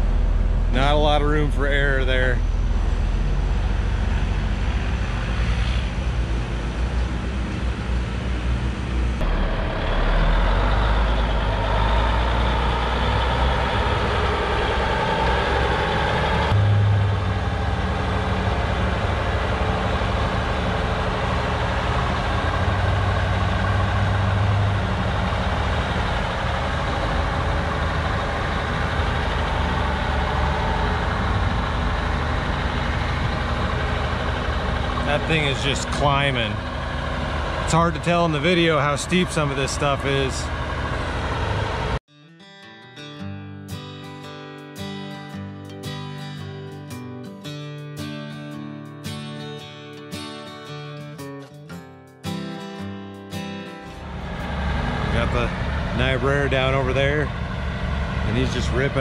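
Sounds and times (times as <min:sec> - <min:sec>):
truck diesel engine under load: 0:00.0 - 0:42.0, 0:53.9 - 0:59.0.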